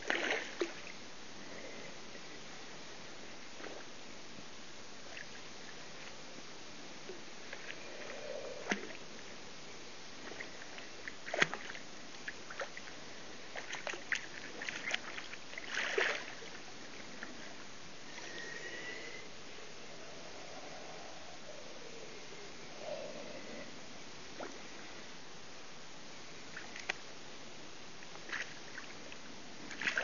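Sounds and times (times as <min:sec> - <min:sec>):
water splashing and sloshing: 0:00.0 - 0:01.0, 0:10.2 - 0:18.4, 0:26.5 - 0:27.0, 0:28.1 - 0:30.0.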